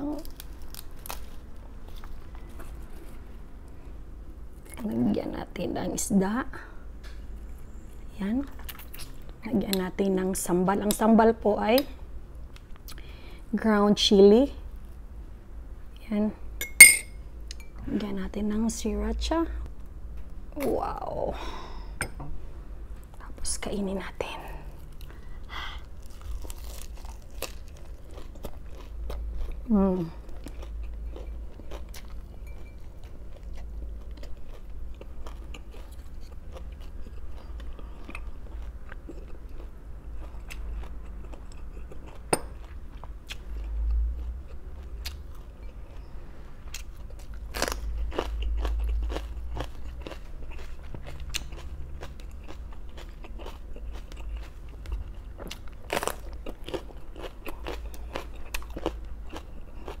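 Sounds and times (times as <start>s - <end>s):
crunching and chewing vegetables: 0.0s - 3.8s, 8.5s - 10.0s, 24.5s - 60.0s
low hum: 14.6s - 41.3s.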